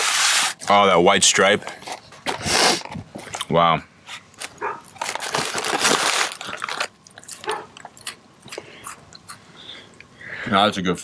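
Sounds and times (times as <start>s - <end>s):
plastic snack bag rustling: 4.4s - 7.5s.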